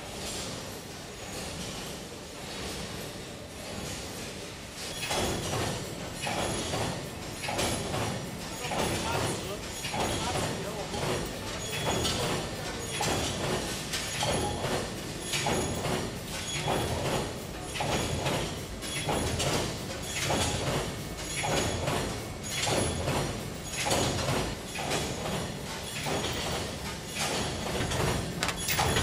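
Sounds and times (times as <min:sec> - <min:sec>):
wire feed machine clatter: 0:04.8 - 0:29.0.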